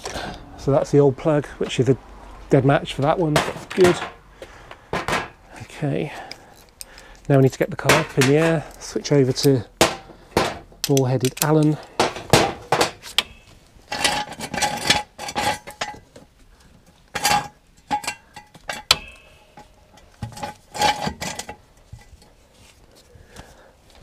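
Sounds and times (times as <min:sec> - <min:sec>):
metal axle stand clanking: 0:07.7 - 0:16.2, 0:17.1 - 0:22.0.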